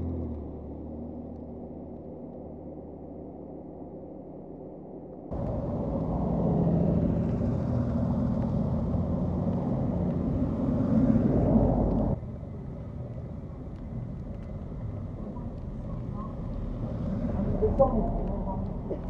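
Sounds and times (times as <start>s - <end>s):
car engines running: 5.3s - 19.0s.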